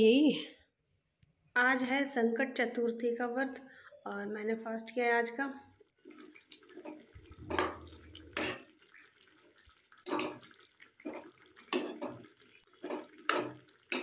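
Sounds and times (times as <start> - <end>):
ladle scraping through food in pan: 6.0 - 14.0.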